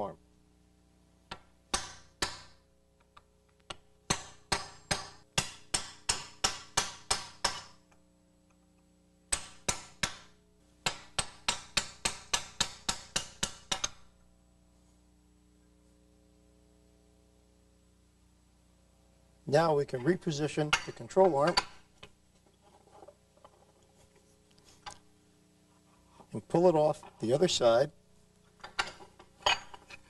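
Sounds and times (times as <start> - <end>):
hammer striking metal chisel: 1.3 - 2.6, 3.7 - 7.8, 9.3 - 14.1, 20.7 - 21.8.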